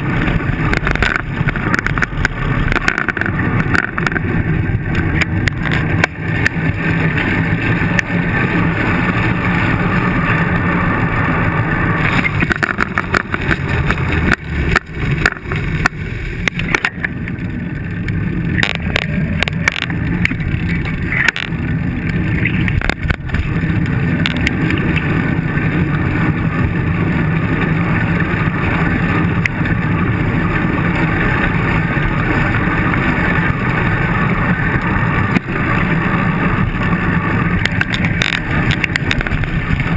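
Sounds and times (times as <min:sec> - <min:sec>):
bicycle knocks and rattles: 0:00.0 - 0:08.2, 0:12.0 - 0:17.3, 0:18.5 - 0:25.7, 0:37.6 - 0:39.9
bicycle road rumble: 0:00.0 - 0:39.9
wind buffeting microphone: 0:00.0 - 0:39.9.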